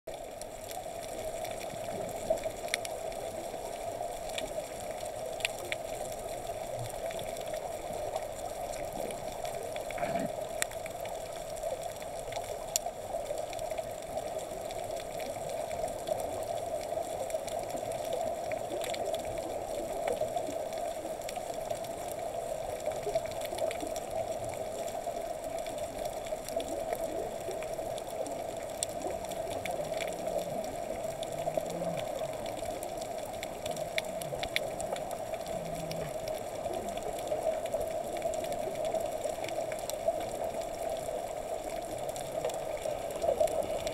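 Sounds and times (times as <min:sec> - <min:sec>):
faint clicks: 0:00.4 - 0:03.3, 0:25.5 - 0:43.9
muffled underwater rush: 0:00.5 - 0:11.5, 0:13.0 - 0:43.9.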